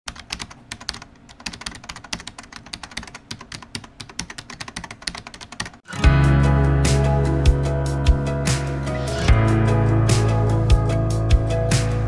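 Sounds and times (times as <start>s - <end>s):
rapid irregular clicking: 0.1s - 5.9s.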